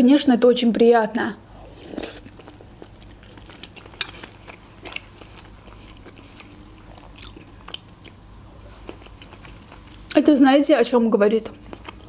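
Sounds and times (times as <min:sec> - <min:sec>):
person chewing with mouth smacks: 0:01.8 - 0:10.2, 0:11.4 - 0:12.0.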